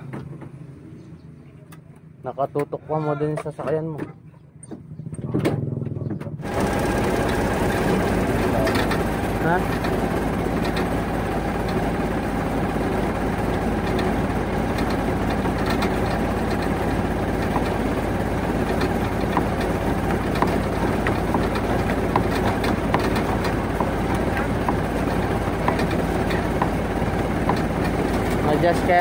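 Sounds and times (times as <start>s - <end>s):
truck engine idling: 3.2s - 29.0s.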